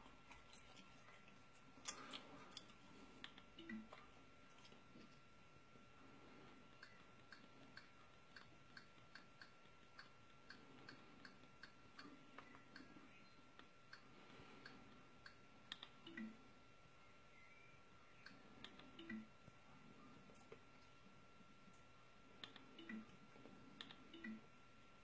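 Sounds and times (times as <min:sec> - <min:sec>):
faint regular clicking: 0:06.5 - 0:16.4, 0:21.7 - 0:24.4.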